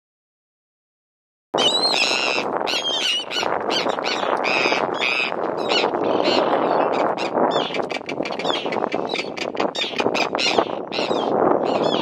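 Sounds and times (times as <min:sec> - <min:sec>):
seabird harsh distress calls: 0:01.6 - 0:12.0
steady rushing background: 0:03.3 - 0:11.6.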